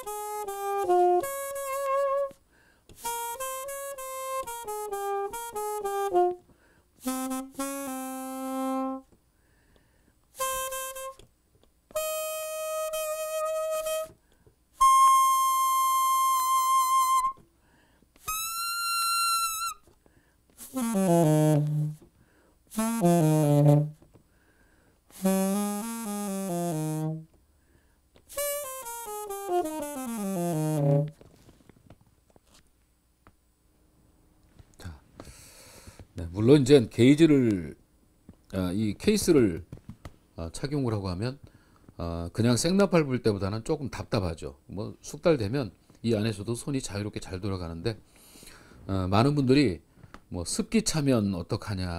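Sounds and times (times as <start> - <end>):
muted alto saxophone melody: 0.0 - 2.4, 3.0 - 9.1, 10.4 - 11.3, 11.9 - 14.2, 14.8 - 17.4, 18.2 - 19.9, 20.6 - 22.0, 22.7 - 24.0, 25.1 - 27.4, 28.3 - 31.2.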